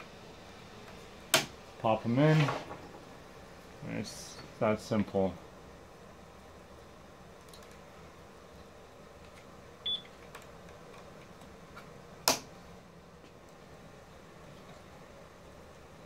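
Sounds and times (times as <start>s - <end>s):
sharp plastic snap: 1.3s - 1.6s, 12.2s - 12.5s.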